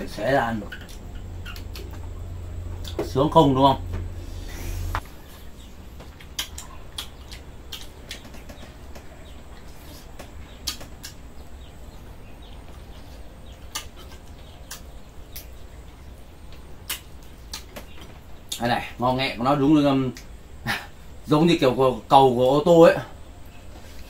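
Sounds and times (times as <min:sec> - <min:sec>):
steady low rumble: 0:00.0 - 0:07.8.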